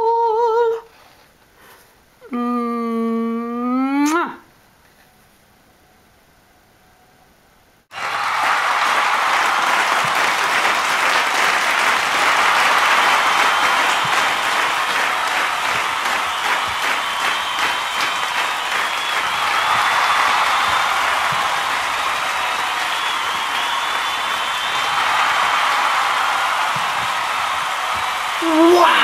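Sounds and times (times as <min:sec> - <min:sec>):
large audience applauding: 0:07.9 - 0:29.0.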